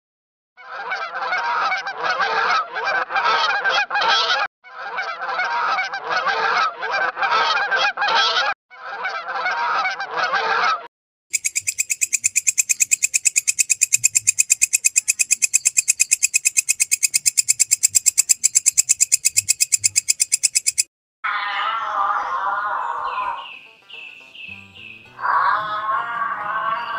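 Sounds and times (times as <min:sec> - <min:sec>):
low animal call: 0:21.2 - 0:23.6, 0:25.2 - 0:26.9
swans honking: 0:21.3 - 0:26.9.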